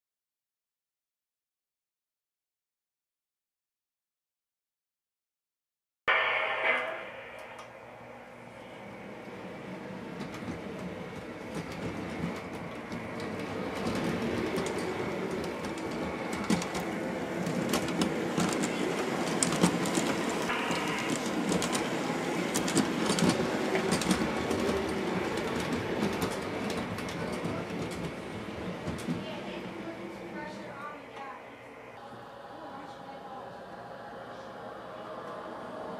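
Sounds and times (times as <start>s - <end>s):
model train running on track: 8.9s - 31.3s.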